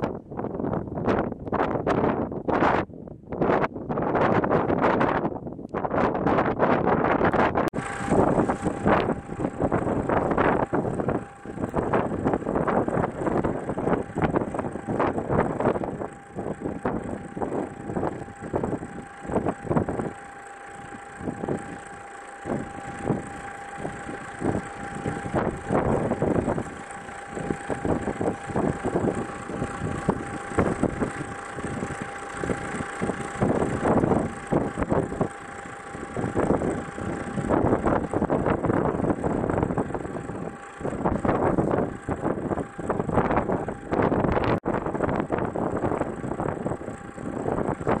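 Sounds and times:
blizzard wind gusts: 0:00.0 - 0:20.0.

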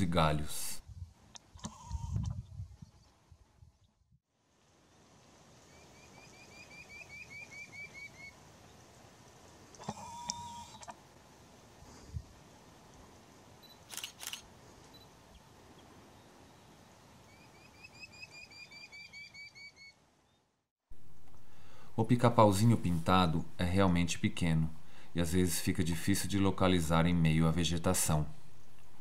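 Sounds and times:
bird whistling rising notes: 0:05.7 - 0:08.4, 0:17.3 - 0:20.0
sharp clicks: 0:13.9 - 0:14.5.

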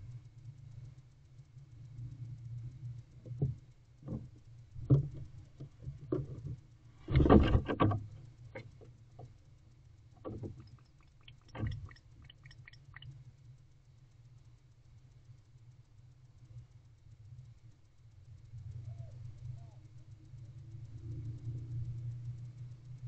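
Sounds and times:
low steady hum: 0:00.0 - 0:23.0
faint clicks: 0:07.7 - 0:13.3.

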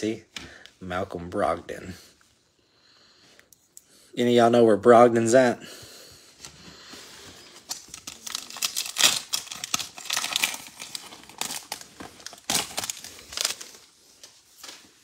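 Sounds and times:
foil wrapper crinkling and tearing: 0:07.6 - 0:14.0.

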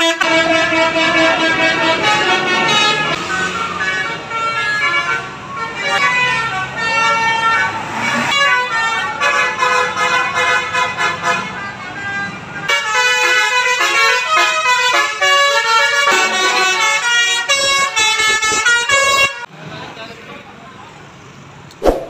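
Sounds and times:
multi-tone bus horn melody: 0:00.0 - 0:19.5
engine hum: 0:00.2 - 0:09.2.

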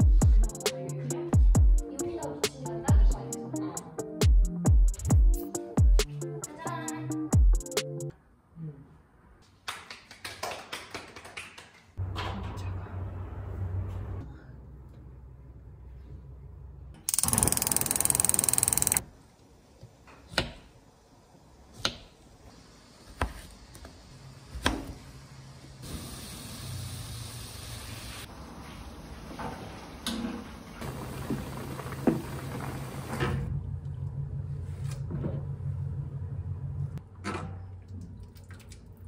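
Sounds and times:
loud hiss: 0:25.8 - 0:28.3
low steady hum: 0:33.5 - 0:37.0.

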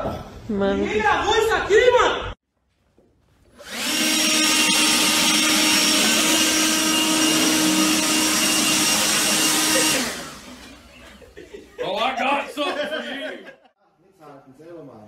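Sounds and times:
leaf blower running: 0:03.6 - 0:10.9.

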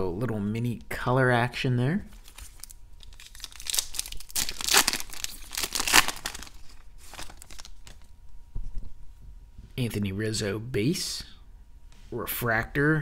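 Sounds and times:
cards rustling out of pack: 0:02.1 - 0:08.1
wrapper torn and crinkled: 0:02.2 - 0:08.1.

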